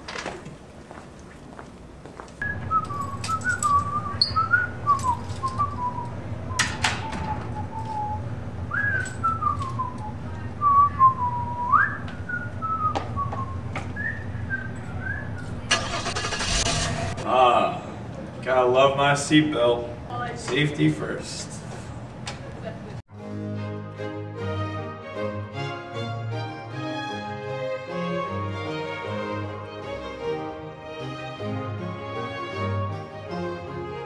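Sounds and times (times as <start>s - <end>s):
steady low hum: 1.7s - 15.8s
person whistling a tune: 2.4s - 15.5s
rushing noise: 15.7s - 18.0s.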